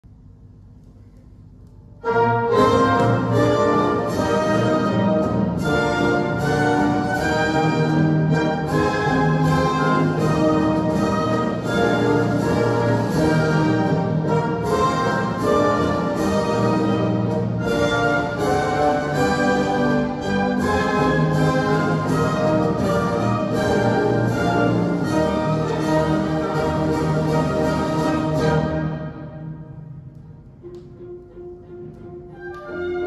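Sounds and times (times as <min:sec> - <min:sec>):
orchestral music from speakers: 0:00.2 - 0:33.0.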